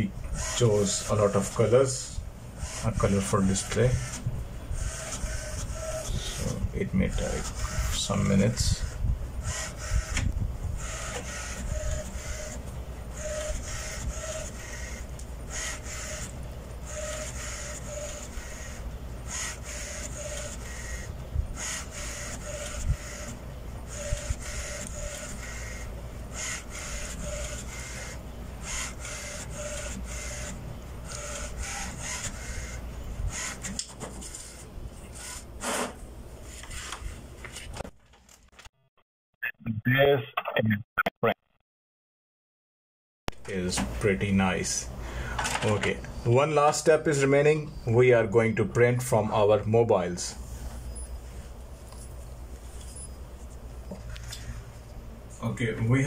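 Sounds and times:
inkjet printer printing: 0.0s - 38.0s.

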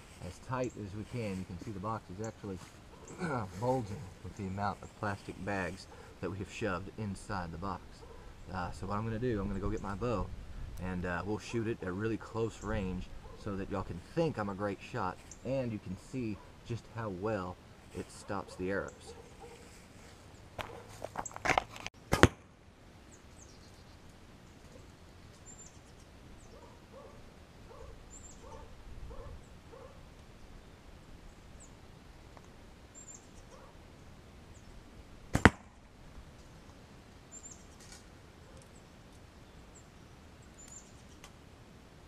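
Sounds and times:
arrow hitting cardboard box: 22.1s - 22.5s, 35.3s - 35.8s.

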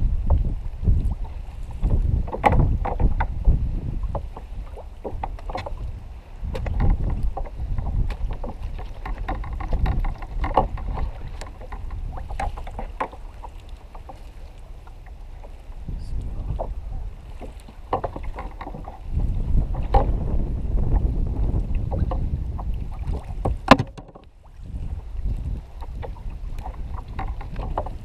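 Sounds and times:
wind rumble on microphone: 0.0s - 28.0s
knocks against plastic kayak: 2.2s - 3.4s, 6.5s - 13.2s, 21.9s - 24.2s.

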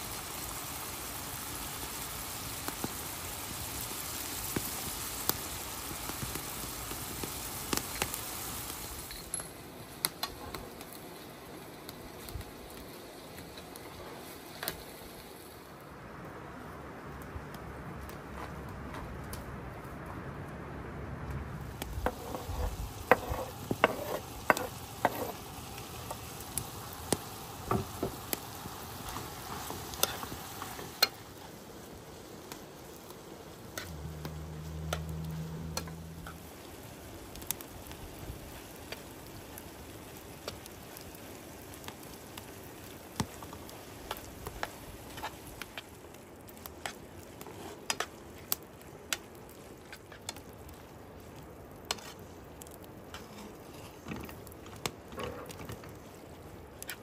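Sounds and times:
food sizzling in a frying pan: 0.0s - 15.8s, 21.8s - 57.0s.

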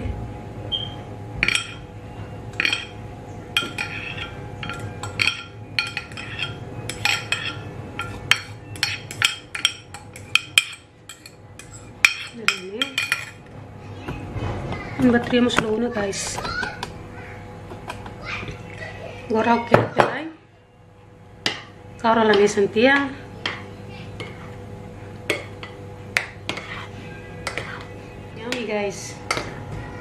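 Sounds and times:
spoon clinking on metal dish: 2.6s - 3.0s, 3.6s - 13.4s.

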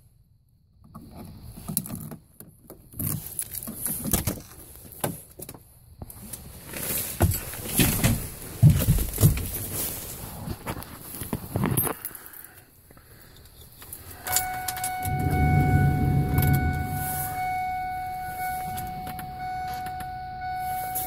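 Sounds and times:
truck door opening: 14.3s - 20.2s.

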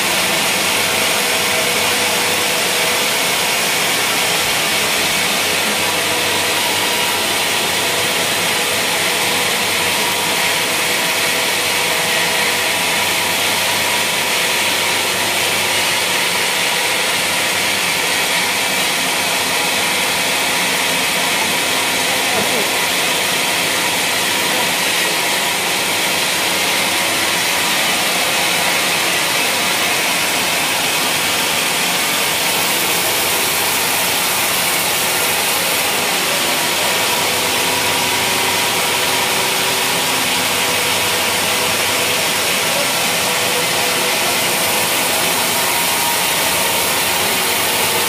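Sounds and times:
band saw cutting log: 0.0s - 48.0s.

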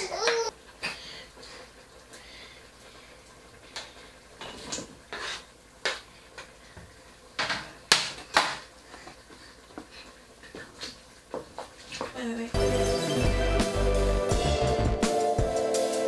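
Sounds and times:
knife scraping on cutting board: 5.1s - 5.5s.

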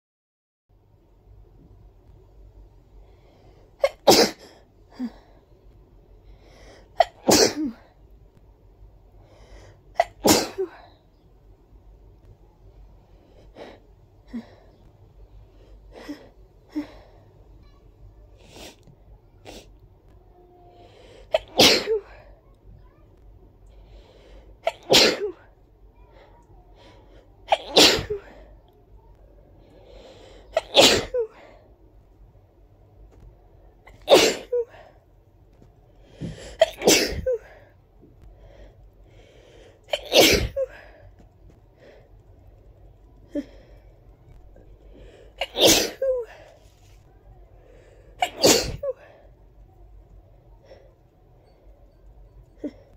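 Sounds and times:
person sneezing: 24.7s - 25.4s, 27.5s - 28.4s, 30.5s - 31.4s, 33.9s - 34.8s, 36.4s - 37.6s, 39.9s - 40.9s, 45.4s - 46.4s, 48.2s - 49.2s.

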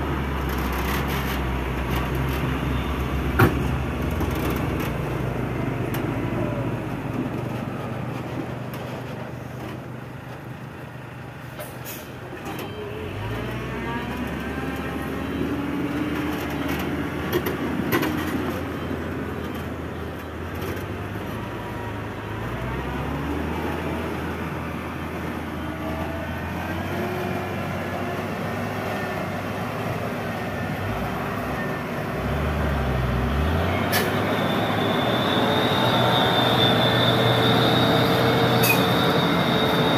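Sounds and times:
diesel truck engine revving: 20.9s - 39.9s.

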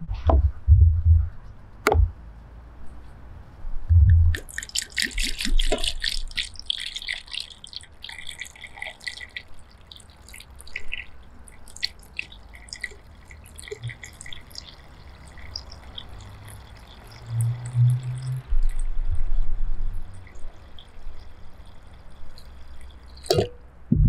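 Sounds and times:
water dripping: 3.9s - 23.7s
water pouring into a bowl: 4.4s - 18.9s, 20.0s - 23.5s.

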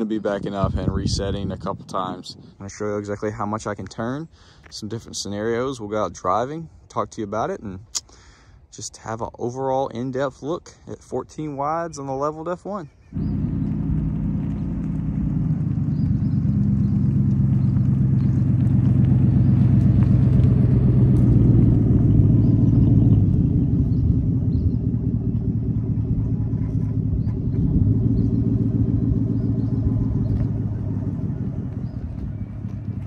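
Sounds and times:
truck engine driving past: 13.2s - 33.0s.

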